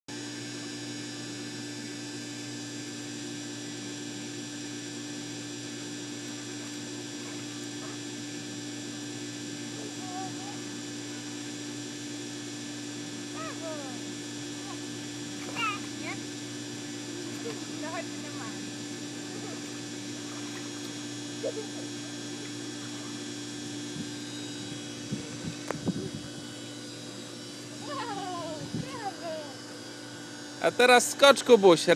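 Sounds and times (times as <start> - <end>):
machinery hum: 0.6 - 31.9
constant droning tone: 5.7 - 11.4, 13.0 - 31.9.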